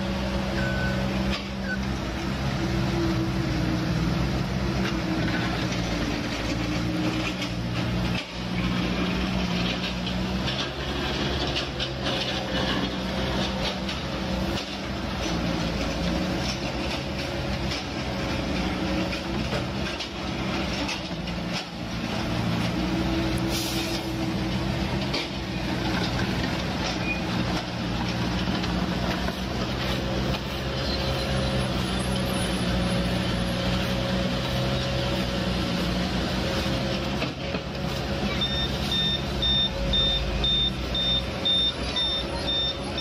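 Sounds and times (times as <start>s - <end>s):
heavy diesel engines running: 0.0s - 43.0s
reversing alarm beeping: 0.5s - 1.0s, 38.3s - 43.0s.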